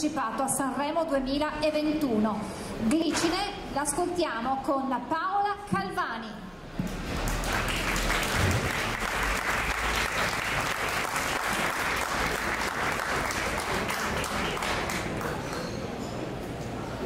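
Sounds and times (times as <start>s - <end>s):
audience applauding: 7.0s - 15.7s.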